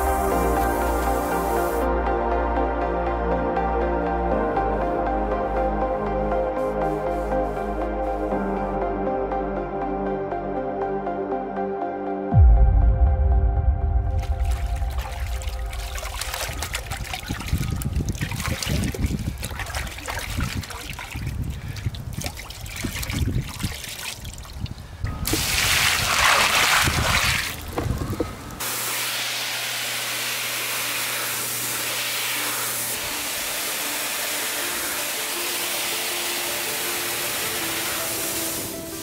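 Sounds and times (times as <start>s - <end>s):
pressure washer spraying tiles: 0.0s - 1.9s, 28.6s - 39.0s
water poured onto gravel: 14.2s - 27.8s.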